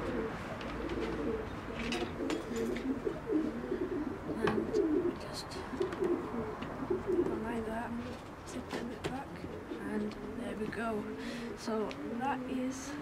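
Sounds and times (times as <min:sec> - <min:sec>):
pigeon cooing: 0:00.0 - 0:08.3, 0:09.0 - 0:13.0.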